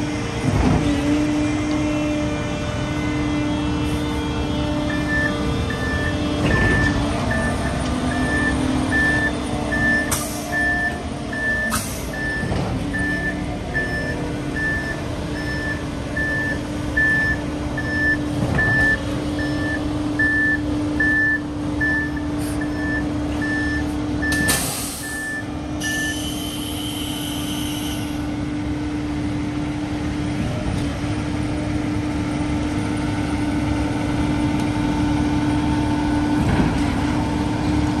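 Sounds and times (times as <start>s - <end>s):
diesel engine running: 0.0s - 38.0s
truck backup alarm beeping: 3.7s - 28.2s
air brake hisses: 11.7s - 12.2s, 24.5s - 25.3s, 26.1s - 28.3s.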